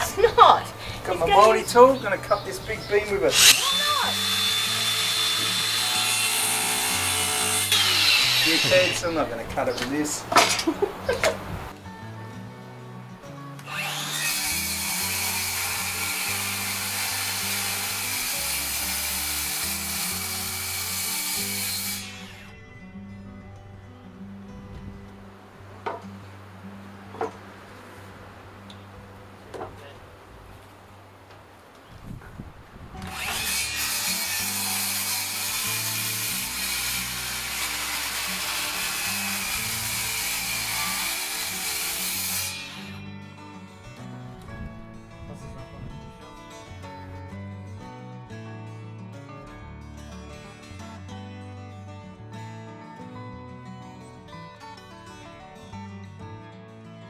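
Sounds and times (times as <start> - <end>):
background music: 0.0 - 29.9, 33.0 - 57.0
circular saw cutting wood: 3.0 - 10.0, 13.6 - 22.6, 33.0 - 43.1.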